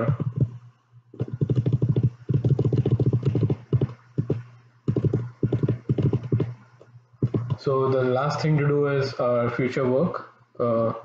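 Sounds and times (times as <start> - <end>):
rapid computer keyboard tapping: 0.0 - 0.6, 1.2 - 6.6, 7.2 - 7.6.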